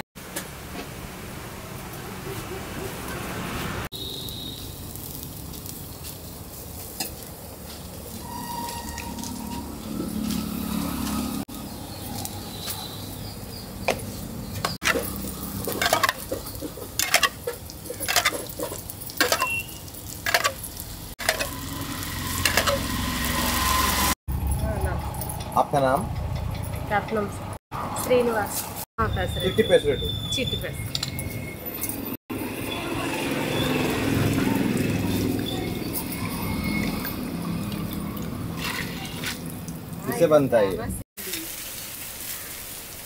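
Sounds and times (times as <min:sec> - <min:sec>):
batter sizzling on griddle: 0:03.9 - 0:09.1, 0:14.7 - 0:24.2, 0:41.2 - 0:43.0.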